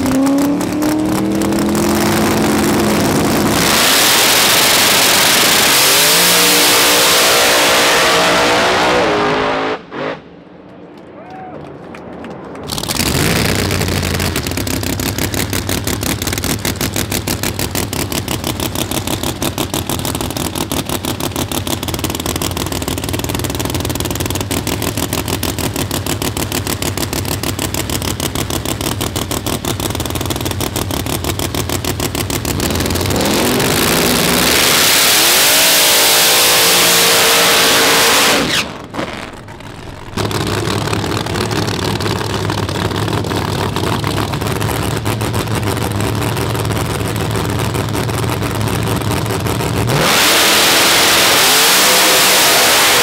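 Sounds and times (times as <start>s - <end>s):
engine revving: 0.0s - 10.3s, 12.7s - 53.0s
race car engine idling choppily: 13.7s - 33.0s, 39.2s - 49.9s.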